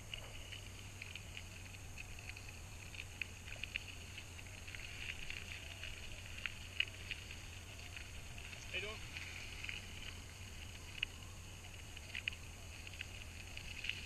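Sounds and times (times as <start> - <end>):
bicycle tyres on gravel: 0.0 - 14.0
low hum: 0.0 - 14.0.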